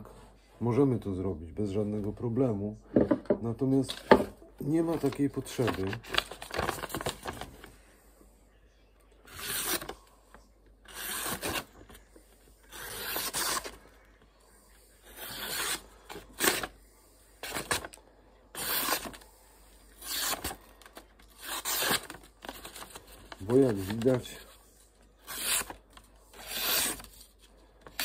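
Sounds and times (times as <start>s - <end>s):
knife slicing paper: 12.7s - 13.8s, 15.1s - 16.7s, 21.4s - 24.3s, 25.2s - 27.2s.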